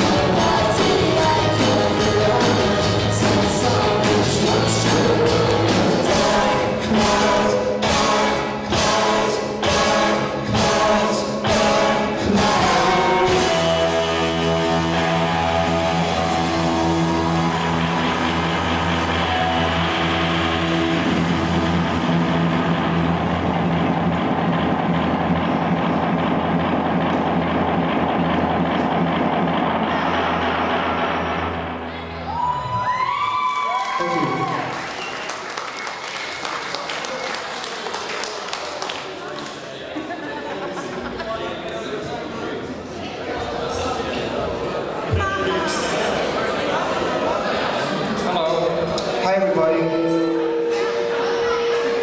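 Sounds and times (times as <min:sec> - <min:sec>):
rock band playing: 0:00.0 - 0:32.6, 0:49.6 - 0:52.0
held chord droning: 0:13.0 - 0:32.4, 0:49.5 - 0:52.0.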